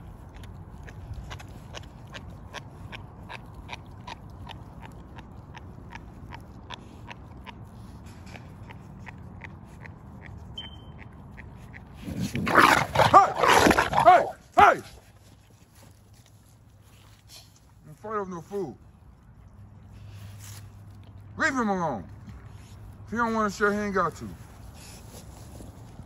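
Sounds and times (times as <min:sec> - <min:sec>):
dog chewing bones: 0:00.0 - 0:13.1
dog growling: 0:12.0 - 0:14.1.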